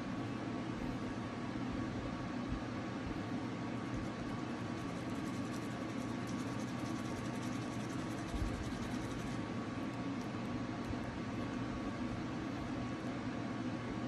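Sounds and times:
household appliance humming: 0:03.3 - 0:14.0.

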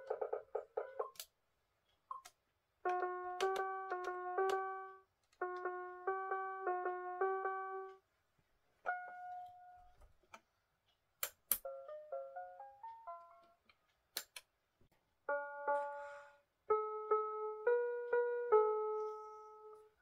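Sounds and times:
toy keyboard electronic tune: 0:02.9 - 0:08.0.

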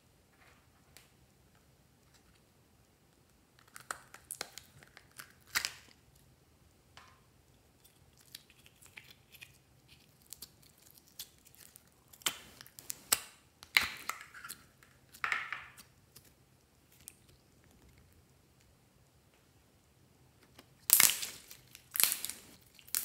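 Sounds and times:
slime crackling and popping: 0:20.8 - 0:23.0.

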